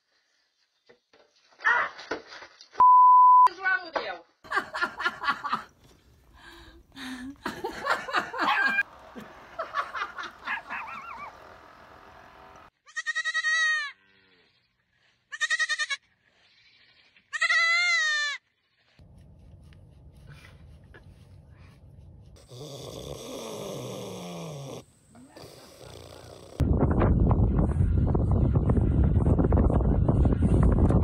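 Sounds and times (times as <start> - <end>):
young goat bleating: 12.8 - 14.0, 15.3 - 19.0.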